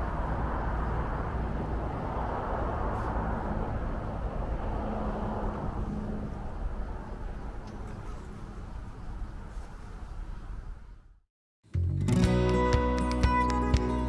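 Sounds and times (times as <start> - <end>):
car road noise: 0.0 - 11.2.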